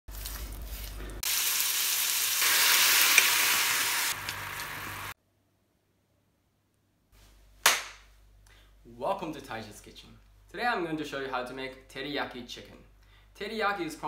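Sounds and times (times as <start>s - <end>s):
chicken sizzling in a frying pan: 1.2s - 5.2s.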